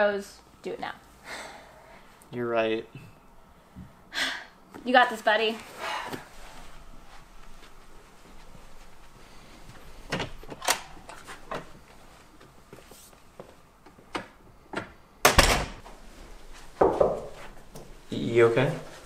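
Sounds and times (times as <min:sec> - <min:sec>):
door clicks and knocks: 0:14.1 - 0:15.8
loud door thump: 0:15.2 - 0:15.8.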